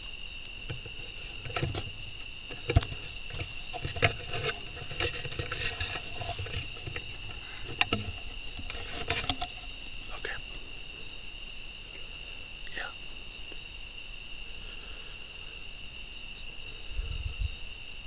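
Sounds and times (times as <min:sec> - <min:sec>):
night insects trilling: 0:00.0 - 0:18.0
clicks and rustles: 0:00.5 - 0:10.6.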